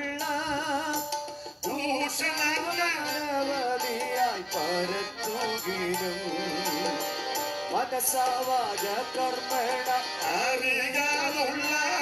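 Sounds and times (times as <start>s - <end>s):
instrumental accompaniment: 0.0s - 12.0s
person singing a christian song: 0.0s - 12.0s.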